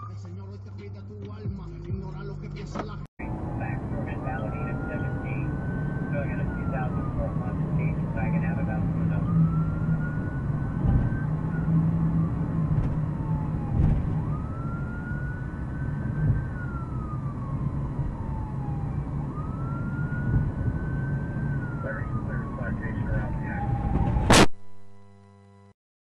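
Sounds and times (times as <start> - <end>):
car driving rumble: 0.0 - 24.4
emergency siren wailing: 3.2 - 24.5.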